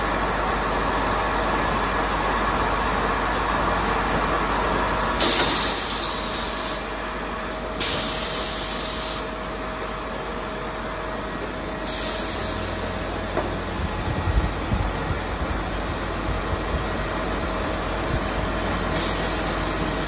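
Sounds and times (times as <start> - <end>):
packing machine humming: 0.0 - 20.0
bursts of hissing air: 5.2 - 6.9, 7.8 - 9.4, 11.8 - 13.9, 19.0 - 20.0.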